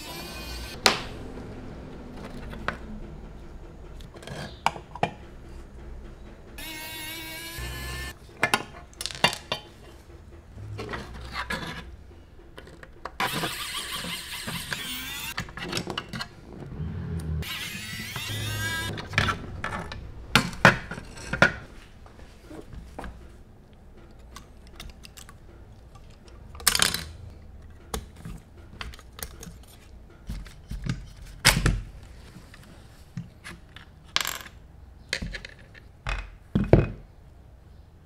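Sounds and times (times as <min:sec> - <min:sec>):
scraping: 0:07.6 - 0:13.2
screwdriver turning screws: 0:13.2 - 0:15.4
small parts clicking and tapping: 0:23.7 - 0:31.2.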